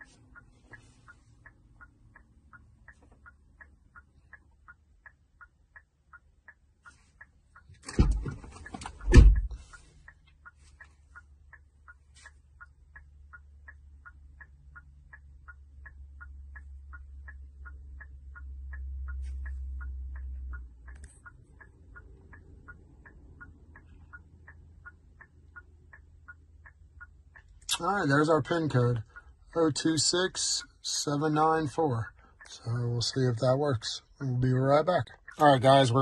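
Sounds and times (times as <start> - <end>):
steady even ticking: 0.0 - 36.0
thump: 7.9 - 8.4, 9.1 - 9.5.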